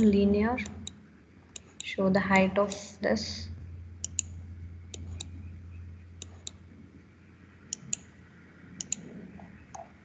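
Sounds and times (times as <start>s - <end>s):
computer mouse clicks: 0.0s - 1.9s, 4.0s - 5.4s, 6.2s - 6.6s, 7.7s - 8.1s, 8.8s - 9.1s
faint low hum: 0.0s - 10.0s.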